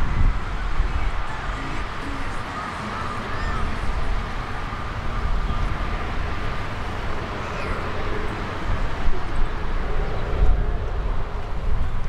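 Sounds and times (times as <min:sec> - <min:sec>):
wind on microphone: 0:00.0 - 0:12.0.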